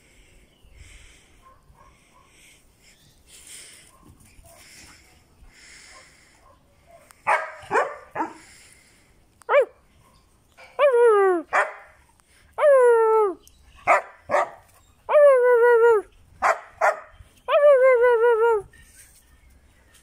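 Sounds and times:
dog barking: 1.4s - 2.4s, 5.9s - 8.4s, 9.5s - 10.2s, 11.5s - 11.9s, 13.9s - 14.6s, 16.4s - 17.1s.

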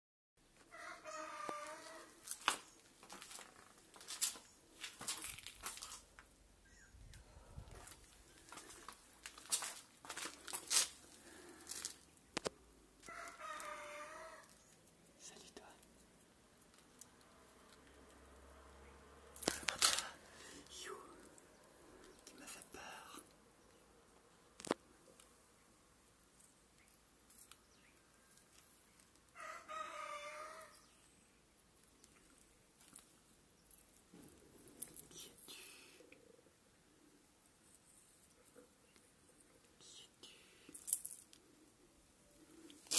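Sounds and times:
faint rooster crowing: 0.6s - 2.6s, 13.0s - 14.7s, 29.3s - 31.0s
rustling and crinkling handling: 2.2s - 6.4s, 7.7s - 12.5s
person speaking: 15.2s - 15.9s, 19.4s - 21.4s, 22.0s - 23.3s.

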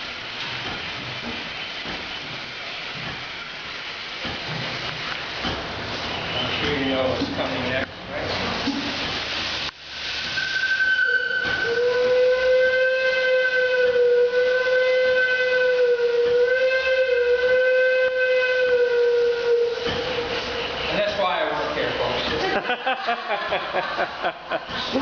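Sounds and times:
steam hissing: 0.0s - 25.0s
steam whistle blast: 10.2s - 20.9s.

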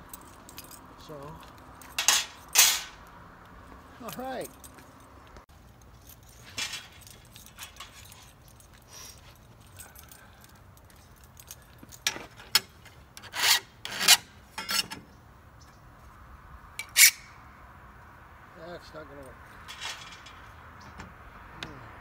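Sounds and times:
saw blades scraping together: 13.2s - 15.0s, 16.8s - 17.3s.

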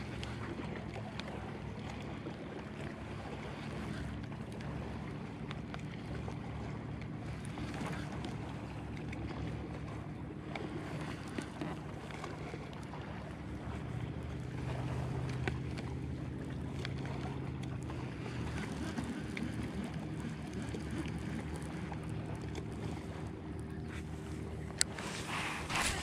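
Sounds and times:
wind on microphone: 23.8s - 26.0s.

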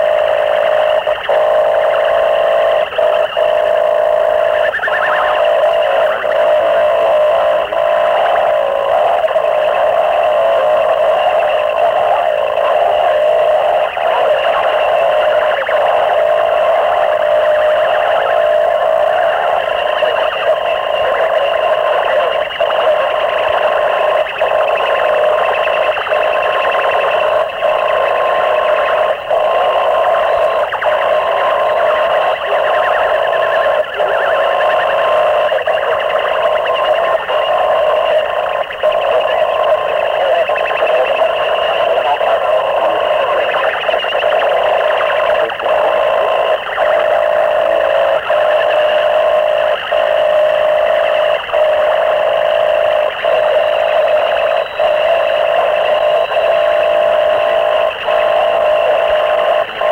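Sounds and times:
distorted harsh noise music: 0.0s - 59.9s.

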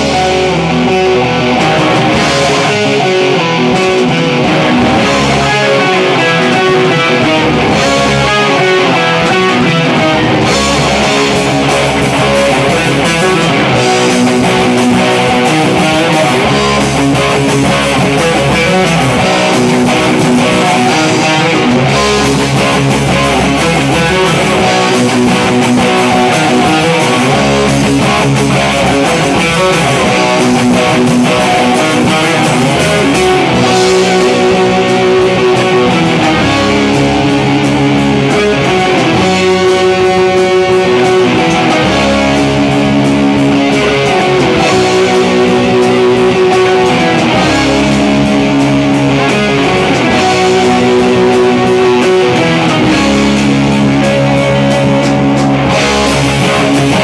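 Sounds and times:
guitar-led music with bass: 0.0s - 57.0s.

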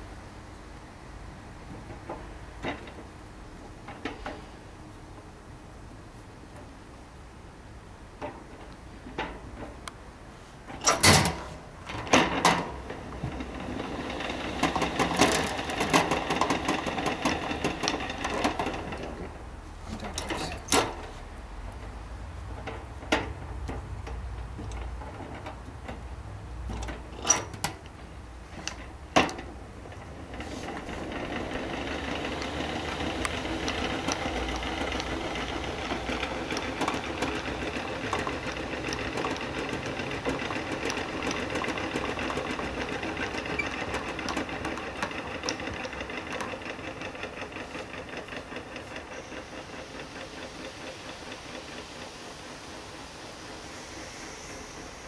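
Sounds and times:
hand-cranked gears whirring: 13.3s - 21.2s, 29.9s - 55.0s.

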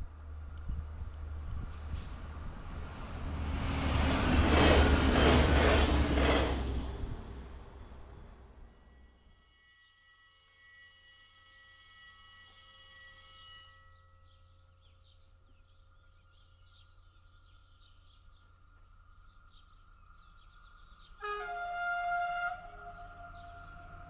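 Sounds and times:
locomotive horn: 21.2s - 24.0s.

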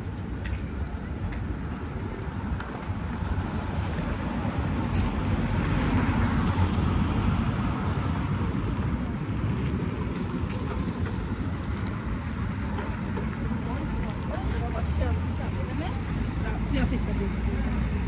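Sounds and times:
vehicle passing by: 3.0s - 12.6s.

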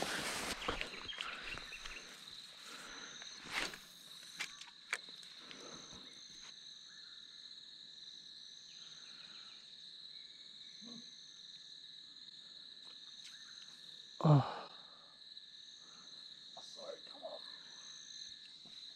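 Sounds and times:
high-pitched insect chorus: 0.0s - 18.9s.

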